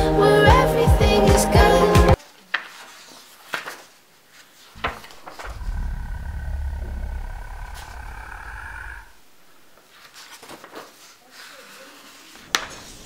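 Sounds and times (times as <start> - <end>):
paper rustling: 2.2 - 5.4, 9.8 - 12.9
low rumble: 4.8 - 9.7.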